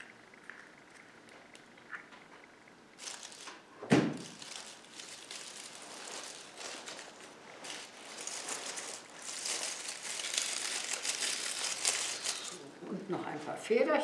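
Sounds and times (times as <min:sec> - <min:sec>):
dry leaves and twigs rustling: 0:03.0 - 0:03.6, 0:04.2 - 0:12.6.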